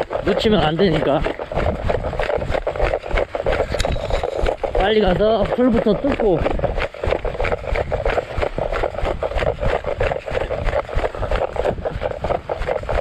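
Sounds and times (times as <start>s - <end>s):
footsteps on wet grass: 0.0s - 13.0s
wind buffeting microphone: 0.0s - 13.0s.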